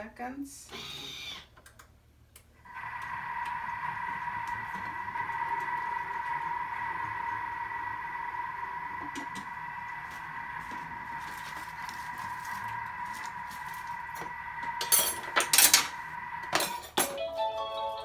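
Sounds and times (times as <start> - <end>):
kitchen mixer motor whining: 0.7 - 1.6, 2.6 - 18.0
utensils clattering on counter: 14.8 - 15.9, 16.5 - 17.2.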